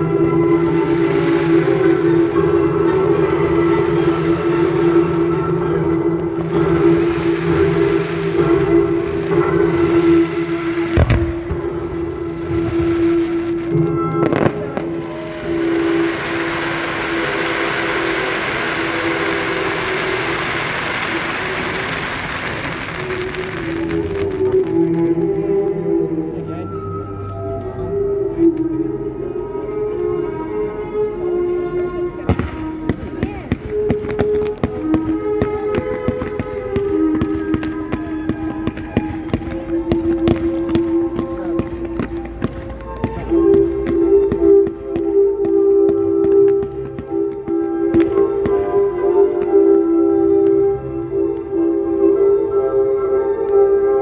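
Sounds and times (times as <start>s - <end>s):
fireworks crackling hiss: 0.0s - 26.8s, 32.1s - 54.0s
steady low tone: 0.0s - 53.8s
music with long held notes: 0.0s - 54.0s
fireworks sharp bangs: 6.2s - 24.8s.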